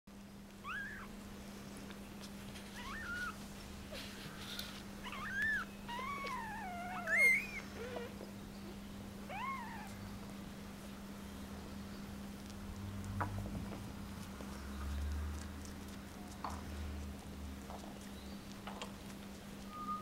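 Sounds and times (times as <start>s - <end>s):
faint steady hum: 0.1s - 20.0s
kittens mewing: 0.6s - 1.2s, 2.7s - 8.2s, 9.2s - 10.2s.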